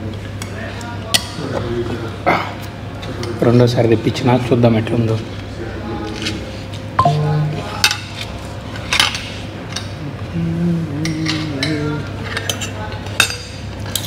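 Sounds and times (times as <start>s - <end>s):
cutlery clinking on plates: 11.2s - 14.0s.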